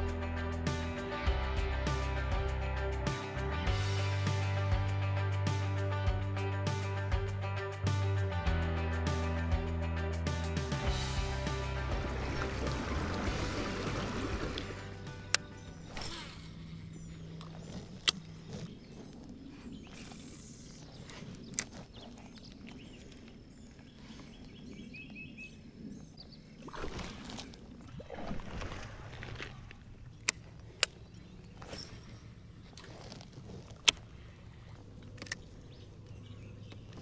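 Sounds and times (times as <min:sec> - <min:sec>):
water sloshing against kayak hull: 0:11.9 - 0:19.5, 0:26.4 - 0:37.0.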